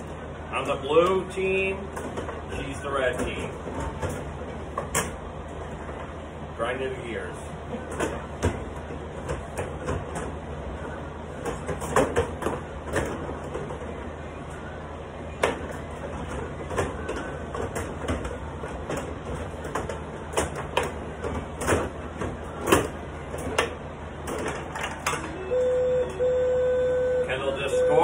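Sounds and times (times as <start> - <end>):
electronic beep: 25.4 - 28.0.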